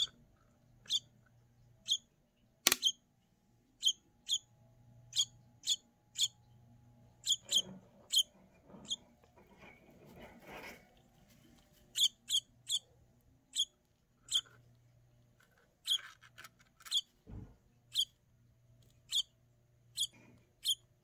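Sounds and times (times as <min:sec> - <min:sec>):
baby bird chirping: 0:00.0 - 0:00.2, 0:00.8 - 0:01.2, 0:01.8 - 0:02.1, 0:02.7 - 0:03.0, 0:03.8 - 0:09.0, 0:11.9 - 0:14.6, 0:15.8 - 0:17.1, 0:17.9 - 0:18.2, 0:18.9 - 0:21.0.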